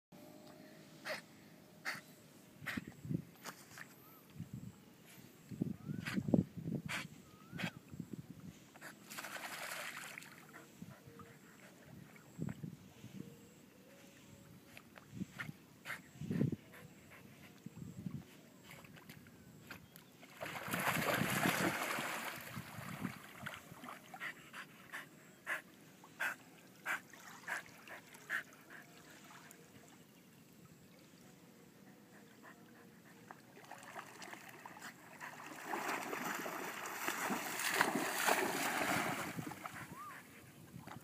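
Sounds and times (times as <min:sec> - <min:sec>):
dog splashing through water: 0:09.1 - 0:10.4, 0:20.4 - 0:23.9, 0:33.6 - 0:39.8.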